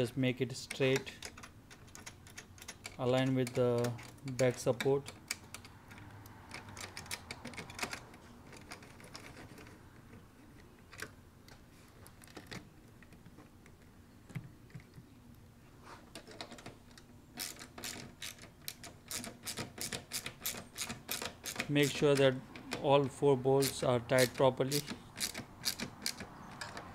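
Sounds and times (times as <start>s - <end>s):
socket ratchet clicking: 17.4s - 22.8s, 23.6s - 26.9s.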